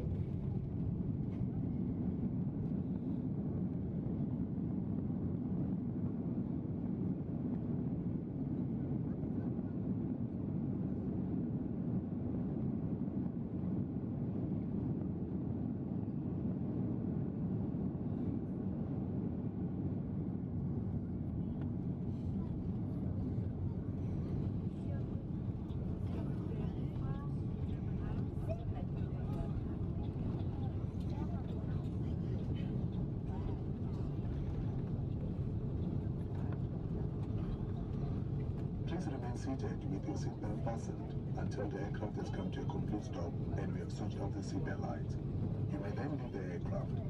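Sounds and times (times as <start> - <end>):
aircraft engine noise: 0.0 - 47.0
wheels rumbling on runway: 21.6 - 47.0.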